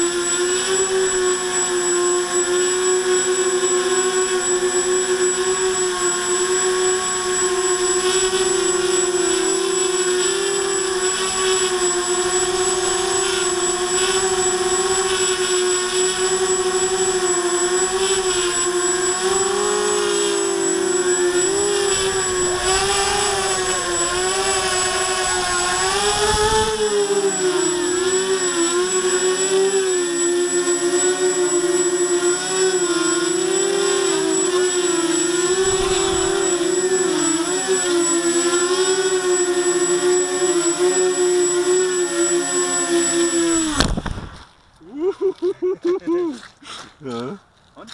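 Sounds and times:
quadcopter motors whining: 0.0 - 47.4
wind rumble on microphone: 25.3 - 26.8.

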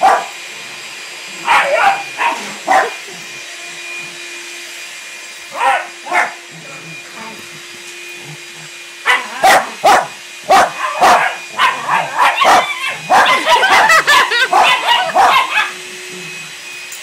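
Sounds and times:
dog barking and yipping: 0.0 - 0.4, 1.4 - 3.1, 5.5 - 6.5, 9.0 - 15.9.

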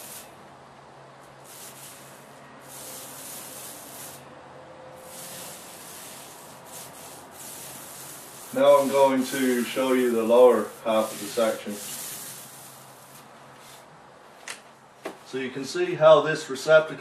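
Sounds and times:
paint roller hissing on wall: 0.0 - 0.4, 1.3 - 4.4, 5.0 - 13.9.

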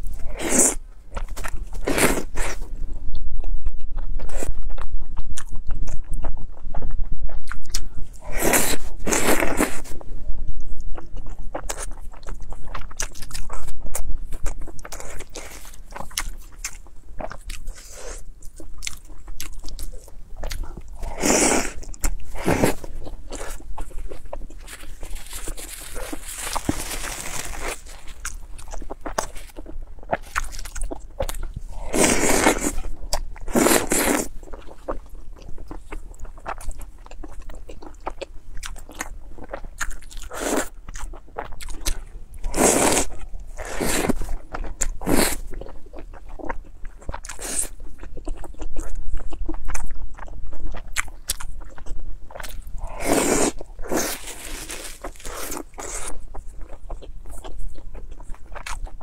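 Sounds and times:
wet chewing with crunching clicks: 0.0 - 59.0
slurping saucy food: 21.0 - 23.6, 42.5 - 44.3, 52.9 - 56.2.

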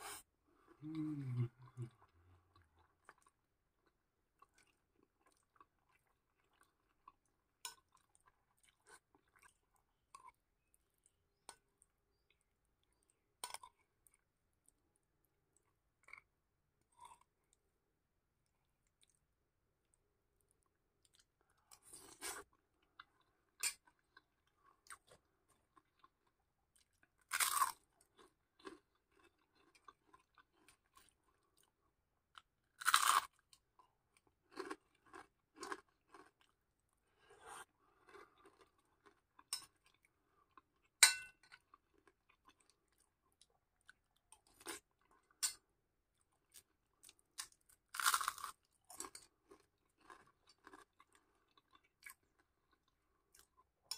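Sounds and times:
chewing and crunching food: 0.5 - 53.9
metal spoon clinking on glass plate: 41.0 - 41.5.

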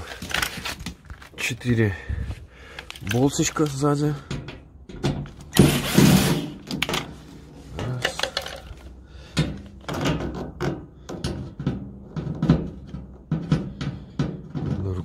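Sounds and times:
clicks and knocks on metal panel: 4.2 - 5.8, 9.3 - 15.0.

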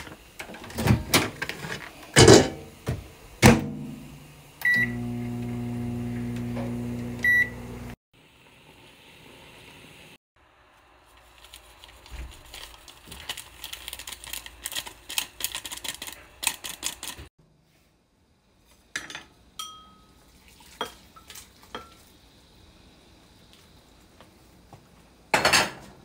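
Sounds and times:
foil sachet crinkling: 11.0 - 17.3
metal pot clinking on ceramic bowl: 19.0 - 20.2.

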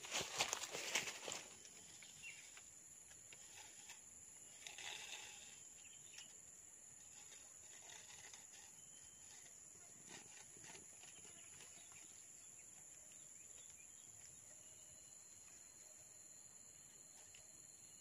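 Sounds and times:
stick and hands rustling leaf litter: 0.0 - 1.7.

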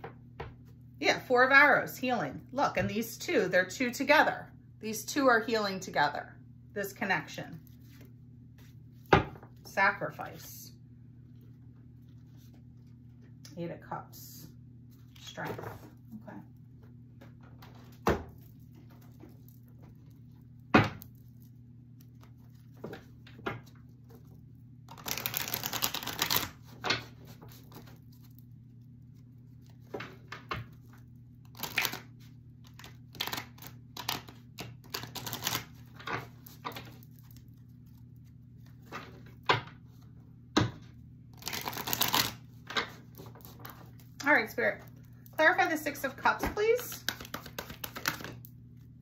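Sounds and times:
faint low hum: 0.0 - 49.0
cards shuffling: 24.9 - 28.3, 31.4 - 39.2, 41.4 - 44.0, 46.8 - 48.4.

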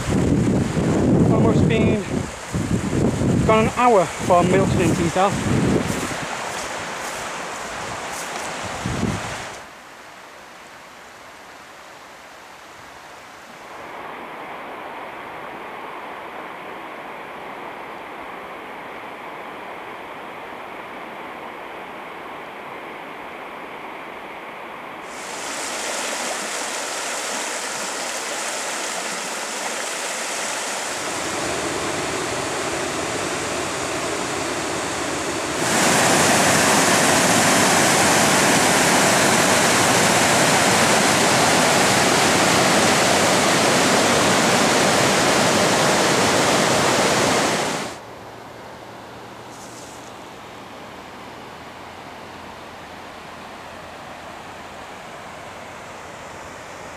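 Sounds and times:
water rushing over rocks: 0.0 - 9.8, 25.0 - 48.0.

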